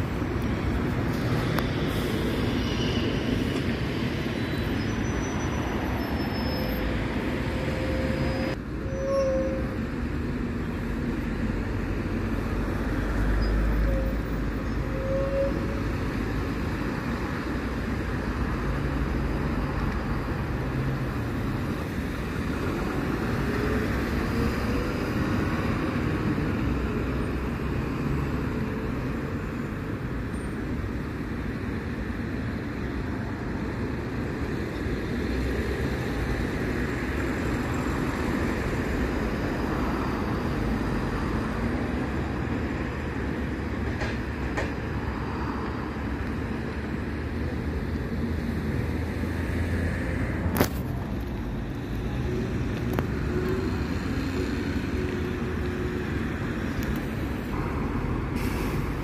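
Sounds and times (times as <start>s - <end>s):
road traffic rumble: 0.0s - 59.0s.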